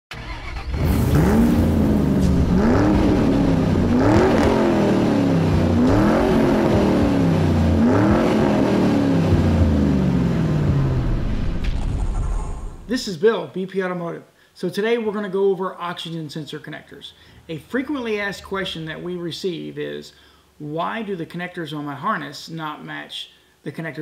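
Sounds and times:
car engine revving: 0.1 - 11.9.

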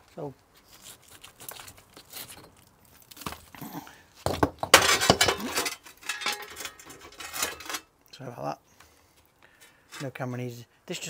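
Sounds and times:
bricks scraping and knocking: 4.2 - 7.7
bricks and rubble clattering: 4.2 - 7.9.

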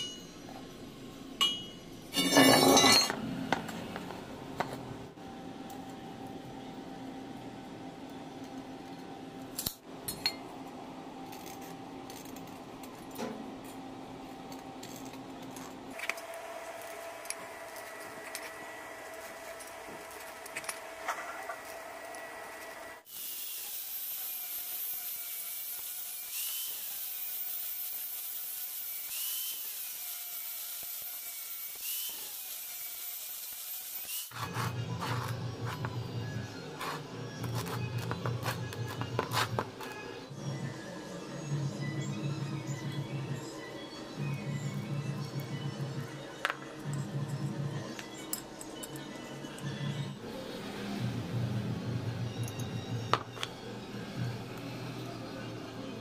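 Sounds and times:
power tool high steady tone: 21.6 - 34.9.

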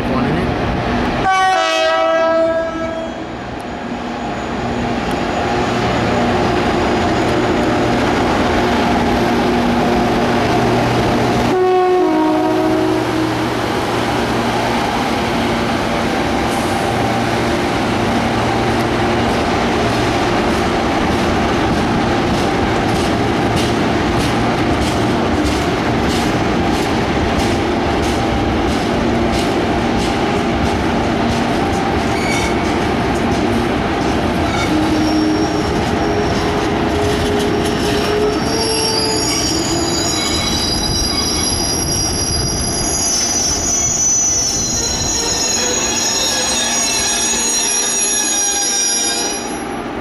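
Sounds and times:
train running: 0.0 - 50.0
two-tone train horn: 1.2 - 3.3, 11.4 - 13.6, 34.5 - 40.2.

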